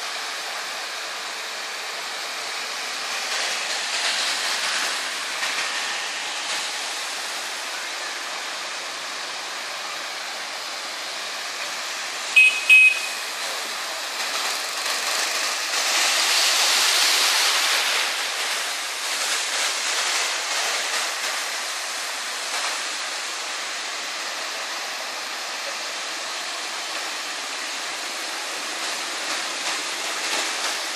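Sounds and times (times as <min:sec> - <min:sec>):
tyres splashing through water: 0:00.0 - 0:30.9
vehicle horn beeps: 0:12.4 - 0:13.3.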